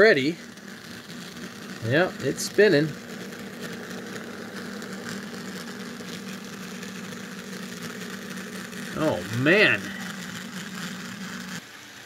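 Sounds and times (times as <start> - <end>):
model train motor humming: 0.0 - 12.0
wheels spinning on rails: 0.0 - 12.0.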